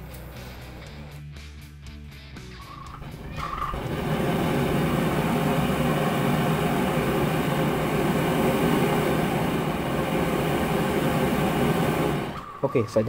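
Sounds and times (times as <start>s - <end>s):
gas burner roaring: 2.6s - 13.0s.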